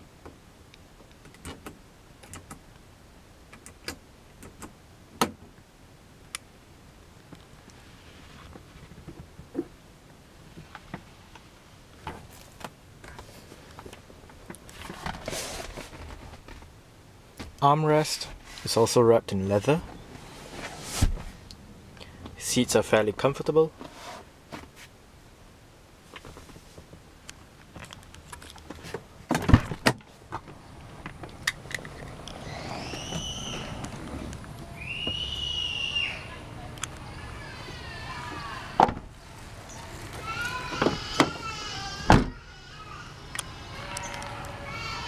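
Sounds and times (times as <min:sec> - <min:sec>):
car door heavy clunk: 0:38.8 - 0:39.1.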